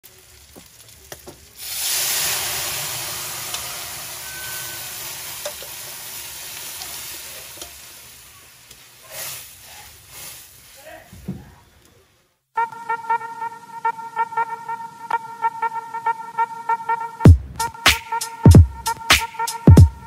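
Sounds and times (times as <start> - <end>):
food sizzling in wok: 0.0 - 10.9.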